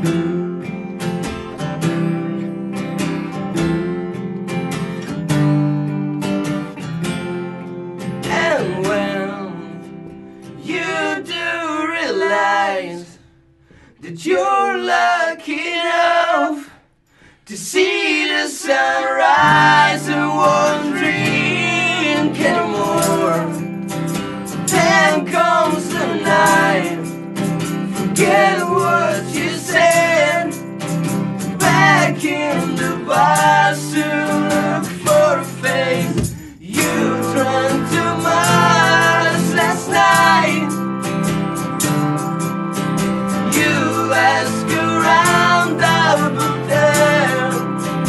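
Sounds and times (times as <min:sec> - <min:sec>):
electric guitar chords: 0:00.0 - 0:11.1, 0:19.3 - 0:48.0
strummed acoustic guitar: 0:00.0 - 0:11.6, 0:18.7 - 0:48.0
men singing: 0:08.2 - 0:10.0, 0:10.6 - 0:13.2, 0:14.0 - 0:16.8, 0:17.5 - 0:23.8, 0:24.6 - 0:30.7, 0:31.4 - 0:41.3, 0:43.3 - 0:48.0.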